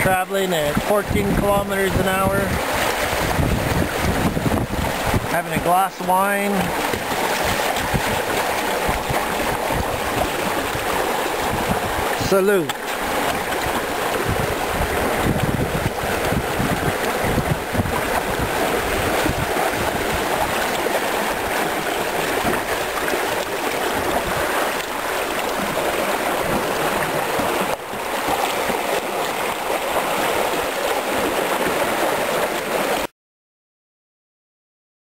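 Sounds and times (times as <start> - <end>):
wind buffeting microphone: 0.0 - 5.7, 6.6 - 12.2, 13.0 - 28.3
water rushing along hulls: 0.0 - 33.1.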